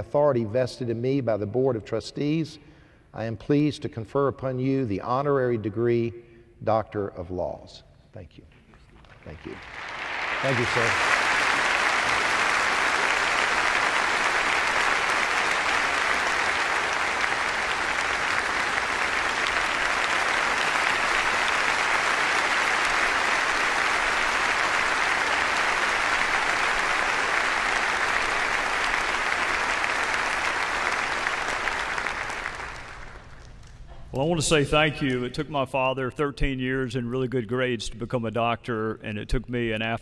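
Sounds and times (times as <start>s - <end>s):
audience applause: 9.2s - 33.5s.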